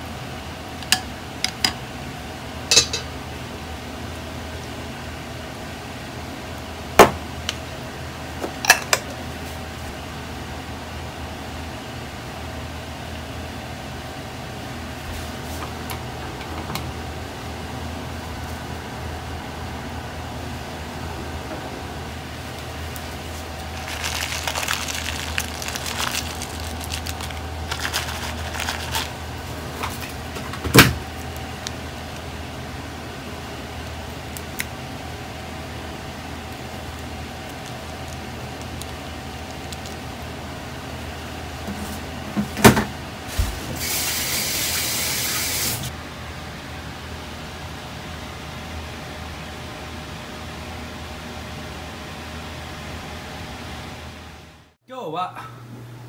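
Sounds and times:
steady mechanical hum: 0.0 - 56.0
rustling: 23.3 - 29.2.

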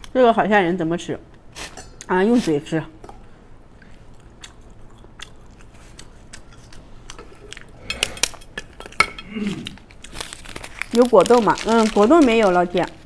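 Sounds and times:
crackles: 3.9 - 13.0
eating clicks and crunches: 3.9 - 13.0.

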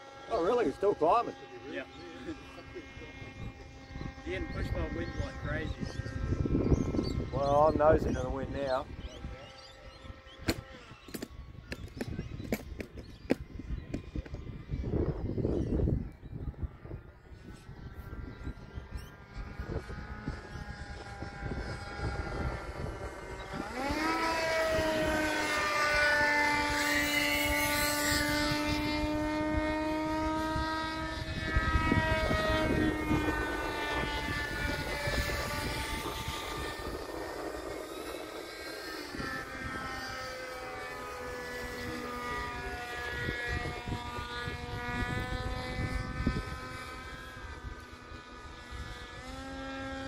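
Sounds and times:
electric motor and propeller droning: 0.0 - 50.0.

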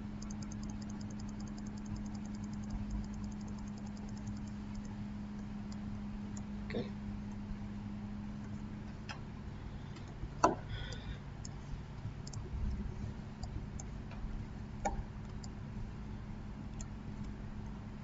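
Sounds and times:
computer mouse clicking: 0.0 - 6.5, 12.2 - 15.6
low electrical hum: 0.0 - 18.0.

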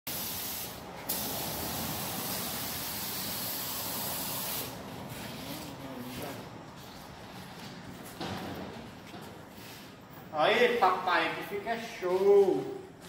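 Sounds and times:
paint spray gun hissing: 0.1 - 4.8.

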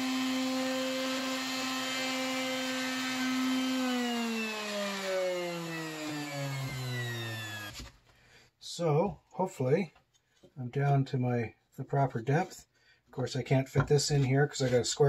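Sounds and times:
router motor whining: 0.0 - 7.9.

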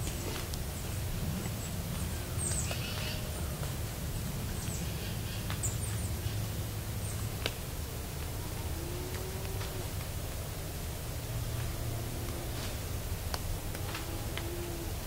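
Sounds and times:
small birds chirping: 0.0 - 3.7
steady low rumble: 0.0 - 15.0.

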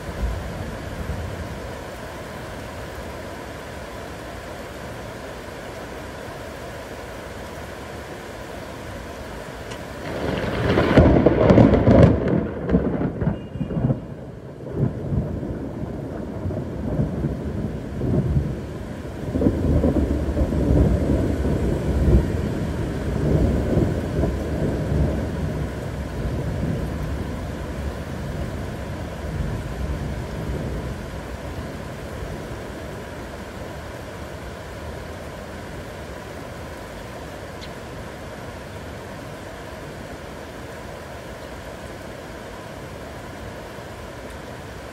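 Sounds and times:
heavy rain hiss: 0.0 - 44.9
thunder clap and rumbles: 10.0 - 18.7, 19.3 - 27.3.

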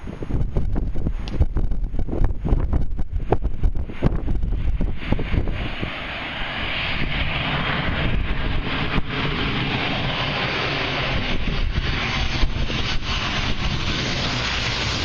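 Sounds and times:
jet engine rush: 0.0 - 15.0
wind buffeting microphone: 0.0 - 15.0.

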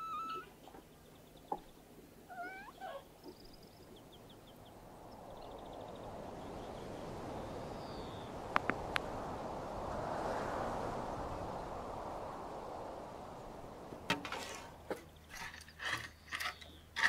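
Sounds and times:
cat meowing: 2.3 - 3.0
steady rushing noise: 4.6 - 14.9.

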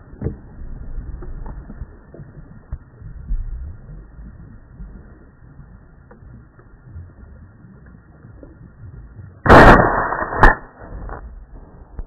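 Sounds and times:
shotgun shots: 9.5 - 10.8.

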